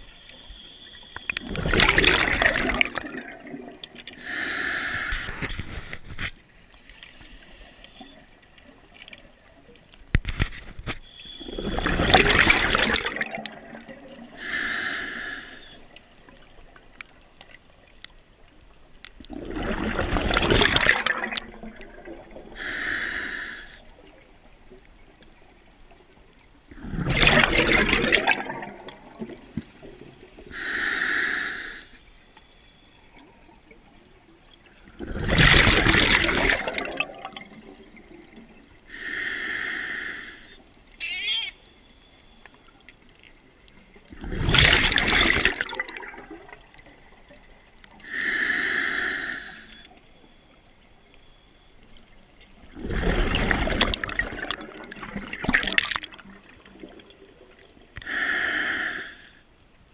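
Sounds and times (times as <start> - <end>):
exhaled bubbles underwater: 0.0 - 5.9, 11.2 - 17.8, 18.4 - 30.7, 33.0 - 39.0, 42.7 - 48.2, 51.8 - 59.1
regulator inhalation hiss: 4.2 - 5.5, 6.8 - 8.2, 14.4 - 15.9, 22.5 - 23.9, 29.5 - 32.0, 37.4 - 40.6, 48.0 - 49.9, 58.0 - 59.4.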